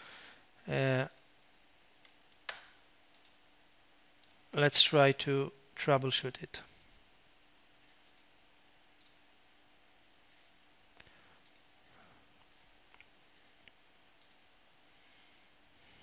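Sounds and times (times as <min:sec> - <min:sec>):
low steady hum: 0:00.0 - 0:16.0
computer mouse clicks: 0:02.0 - 0:03.4, 0:04.2 - 0:04.4, 0:07.8 - 0:08.3, 0:09.0 - 0:09.2, 0:10.3 - 0:10.6, 0:11.4 - 0:14.5.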